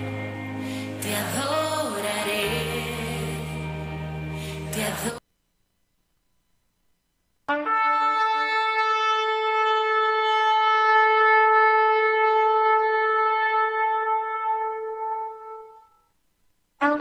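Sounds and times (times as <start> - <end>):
horn long note: 7.5 - 16.0, 16.8 - 17.0.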